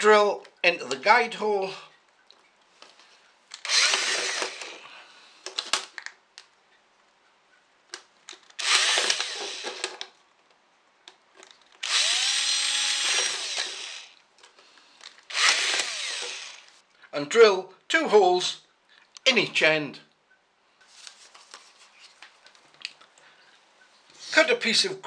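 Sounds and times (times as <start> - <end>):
cordless drill boring through plastic: 3.6 - 4.8, 8.6 - 10.0, 11.8 - 14.2, 15.3 - 16.8.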